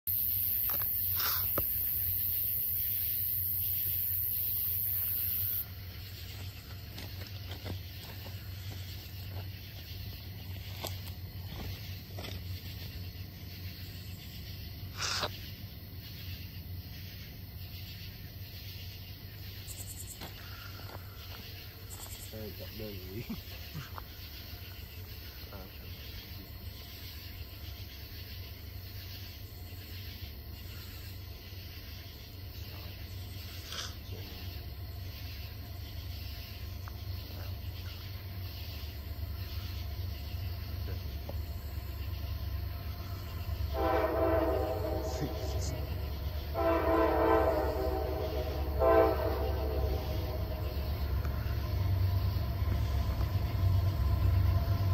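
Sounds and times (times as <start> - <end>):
diesel locomotive rumble: 5.5 - 54.9
steady low rumble: 34.4 - 54.9
locomotive air horn blasts: 43.6 - 51.6.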